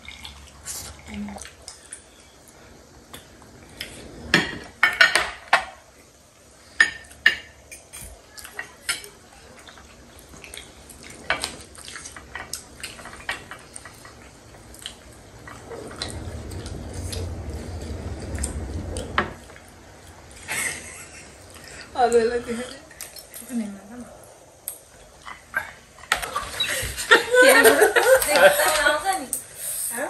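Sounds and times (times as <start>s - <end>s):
low rustling noise: 14.4s - 21.0s.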